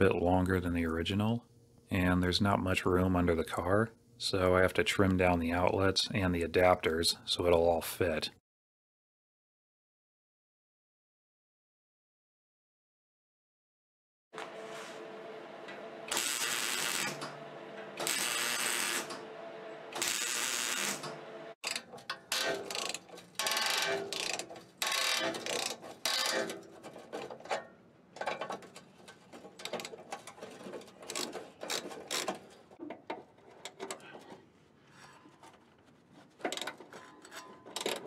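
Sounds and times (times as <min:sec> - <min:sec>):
harsh power tool bursts: 0:16.1 - 0:17.2, 0:18.0 - 0:19.2, 0:19.9 - 0:21.1
socket ratchet clicking: 0:22.7 - 0:26.4.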